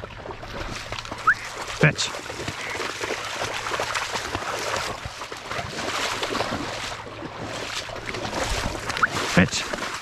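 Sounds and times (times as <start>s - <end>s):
water splashing and sloshing: 0.0s - 10.0s.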